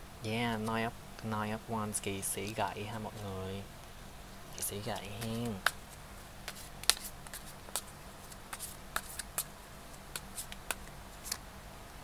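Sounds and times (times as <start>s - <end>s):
cards shuffling and snapping: 4.9s - 11.4s.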